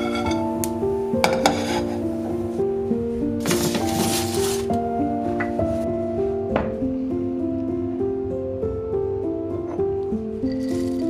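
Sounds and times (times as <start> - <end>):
spatula scraping frying pan: 0.0 - 0.4, 1.2 - 2.1
soft piano background music: 0.0 - 11.0.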